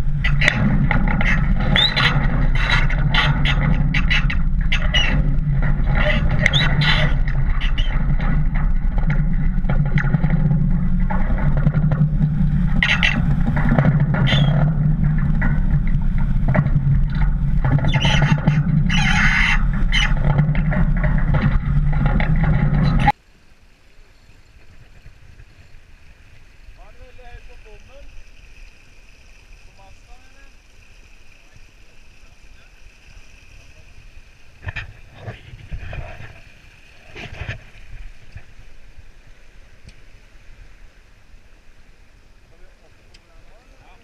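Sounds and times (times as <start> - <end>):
wind buffeting microphone: 0.0 - 23.2.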